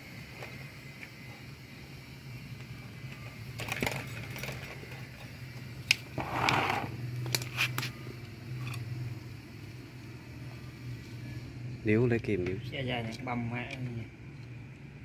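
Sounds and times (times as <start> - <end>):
pliers clicking on bamboo skewers: 5.8 - 6.1.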